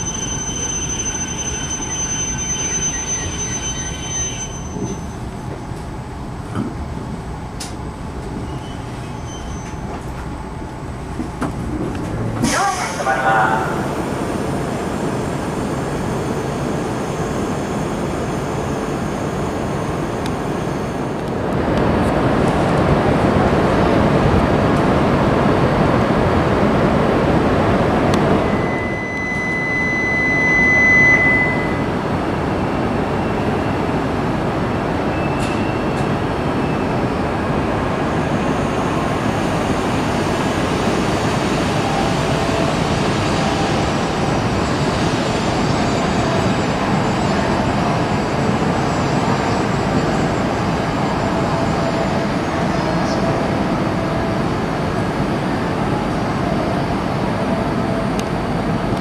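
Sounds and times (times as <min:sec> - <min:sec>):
train running noise: 0:00.0 - 0:59.0
high steady tone: 0:28.2 - 0:32.0.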